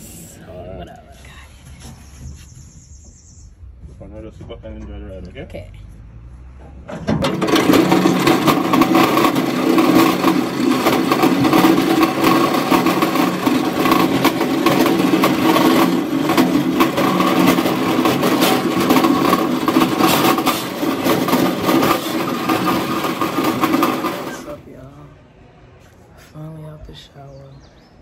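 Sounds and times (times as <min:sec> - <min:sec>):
coaster wheels rumbling on rail: 0:01.6 - 0:05.3, 0:06.5 - 0:25.4
continual rattling: 0:06.6 - 0:24.8.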